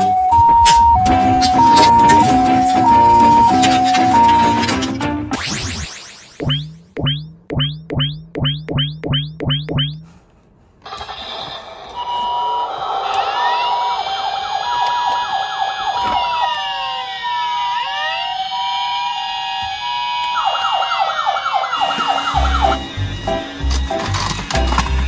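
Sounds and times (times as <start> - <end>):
toy sirens: 0.0 - 5.0, 10.9 - 25.0.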